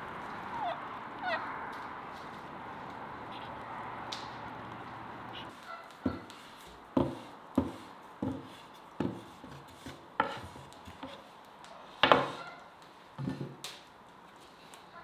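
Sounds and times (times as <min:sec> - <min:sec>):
rolling pin on wooden board: 0:06.0 - 0:11.2, 0:12.0 - 0:12.4.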